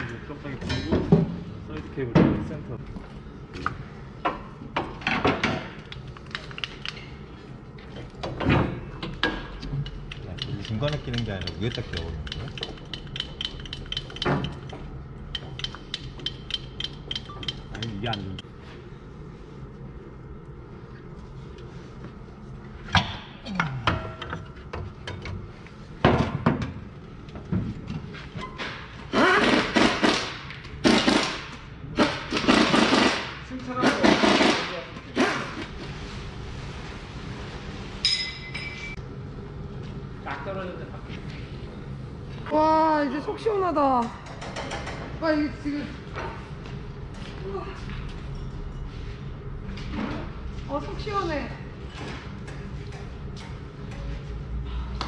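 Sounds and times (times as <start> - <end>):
pneumatic impact wrench rattling: 29.1 - 35.6.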